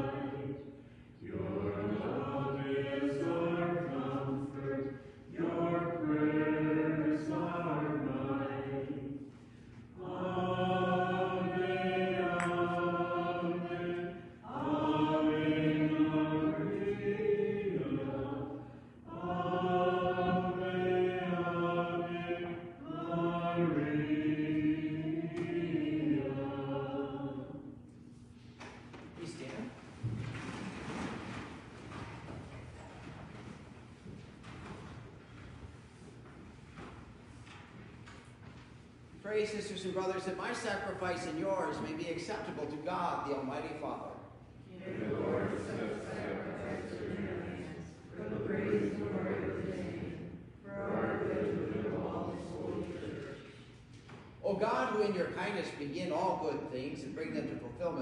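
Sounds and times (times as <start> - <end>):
voices singing a hymn: 0.0 - 27.9, 39.2 - 58.0.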